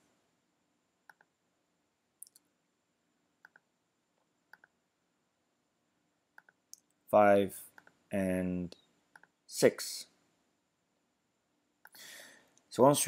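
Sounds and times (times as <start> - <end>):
computer mouse clicks: 1.1 - 1.3, 3.4 - 3.7, 4.5 - 4.8, 6.4 - 6.9, 9.1 - 9.4.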